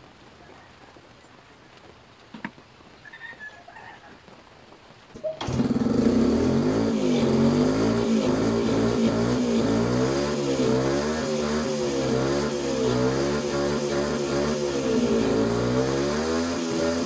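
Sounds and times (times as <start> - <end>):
two-stroke engine revving: 5.4 - 17.0.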